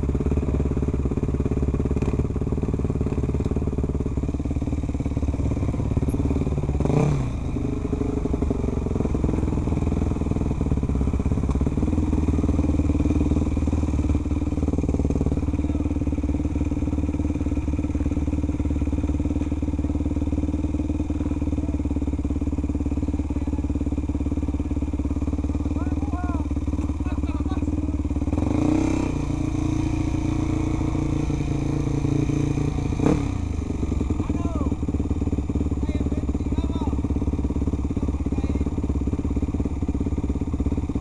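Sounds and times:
motorcycle engine running: 0.0s - 41.0s.

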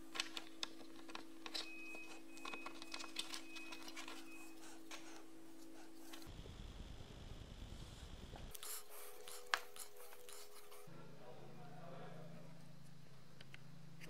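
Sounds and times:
plastic clicks and rattles: 0.0s - 4.3s.

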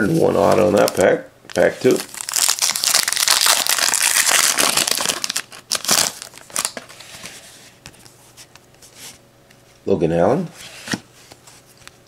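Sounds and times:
card pack wrapper crinkling: 0.4s - 6.9s.

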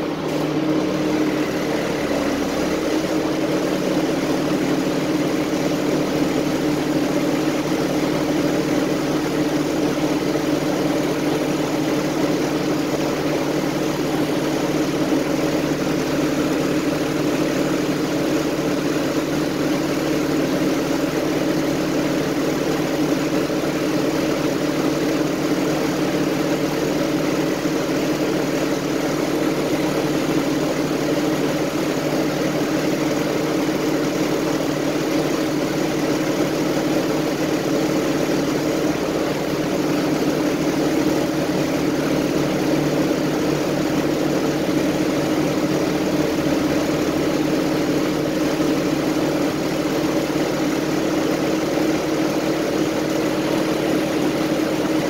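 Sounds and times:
bus engine droning: 0.0s - 10.2s.

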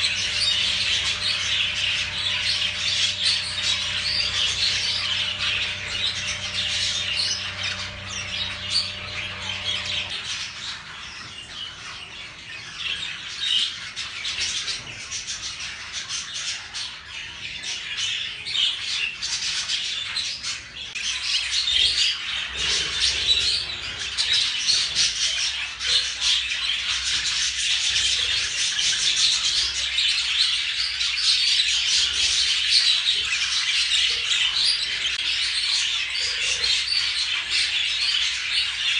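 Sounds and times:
low steady hum: 0.0s - 10.7s
budgerigars chattering and chirping: 0.0s - 38.9s.

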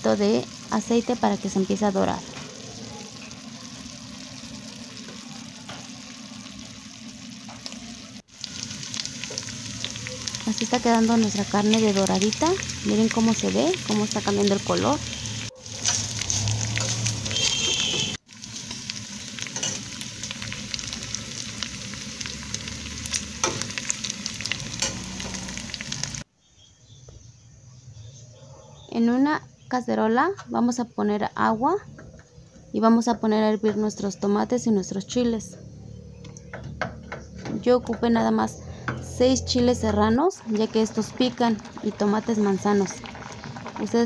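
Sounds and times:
meat sizzling in a pot: 0.0s - 26.3s, 38.9s - 44.0s
oil crackling and popping: 0.1s - 26.3s, 40.3s - 44.0s.

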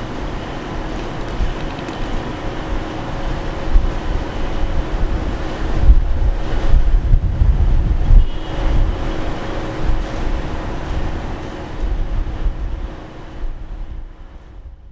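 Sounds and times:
distant train on steel viaduct: 0.0s - 14.9s
wind buffeting microphone: 0.7s - 14.9s.

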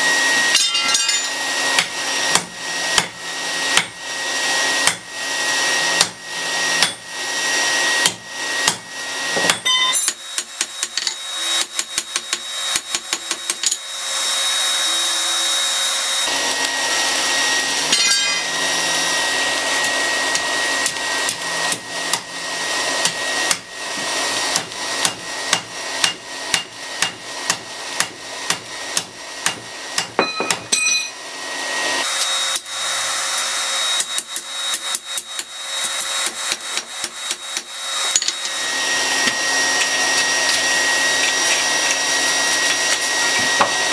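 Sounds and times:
anvil ringing: 0.5s - 1.4s, 9.4s - 10.2s, 17.9s - 18.5s, 30.2s - 31.2s
hammer striking metal on anvil: 0.5s - 4.0s, 6.0s - 6.2s, 6.8s - 7.1s, 9.4s - 13.8s, 17.9s - 18.5s, 25.0s - 31.2s.

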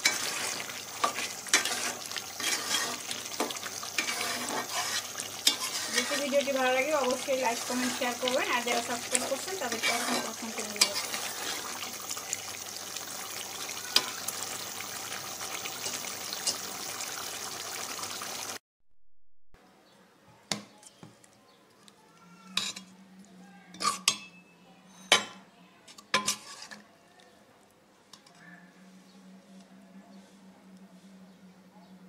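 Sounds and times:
steel spoon scraping bowl: 0.0s - 11.8s, 23.8s - 24.3s, 26.2s - 26.8s
curry bubbling in pot: 0.0s - 18.6s.

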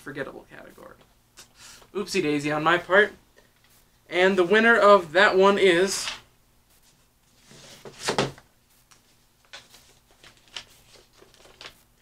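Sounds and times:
card crinkling and clicking: 8.9s - 11.8s
paper rustling: 8.9s - 12.0s.

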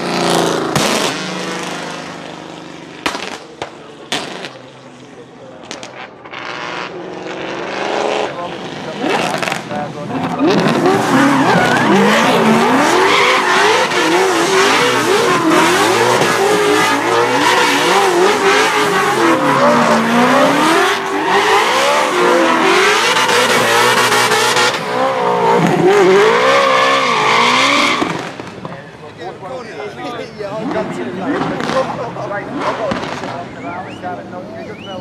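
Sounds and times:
car engine revving hard: 0.0s - 4.6s, 5.7s - 28.6s, 30.6s - 33.4s
tyres squealing: 9.0s - 28.2s.

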